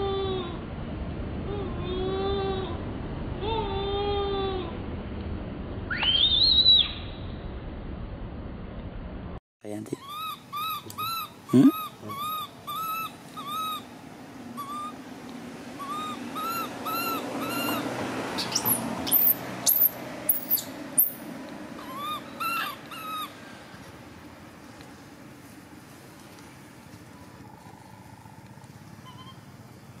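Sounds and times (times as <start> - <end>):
baby macaque crying: 3.4 - 4.7, 10.0 - 13.9, 14.6 - 15.0, 15.8 - 21.1, 21.8 - 23.4
shrill falling squeals: 5.9 - 7.3.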